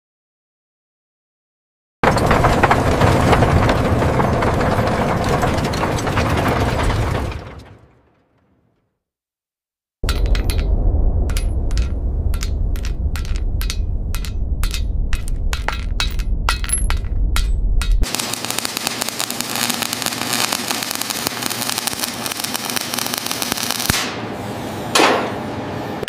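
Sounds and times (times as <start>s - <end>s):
low rumble: 2.0s - 7.9s, 10.0s - 22.7s
welding crackling hiss: 18.1s - 24.2s.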